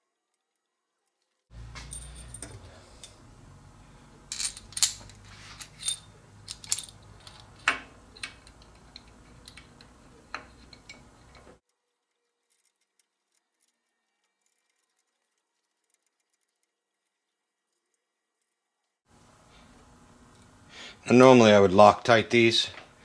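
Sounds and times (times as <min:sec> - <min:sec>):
metal parts clinking: 0:01.7 - 0:03.2, 0:04.3 - 0:11.4.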